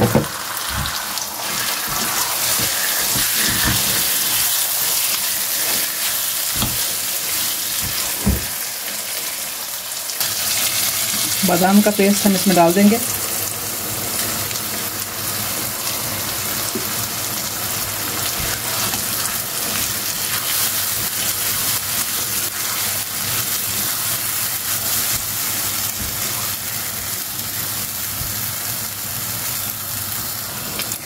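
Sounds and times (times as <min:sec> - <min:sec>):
chicken sizzling in a wok: 0:00.0 - 0:31.0
spatula stirring: 0:00.7 - 0:08.3, 0:18.2 - 0:26.5.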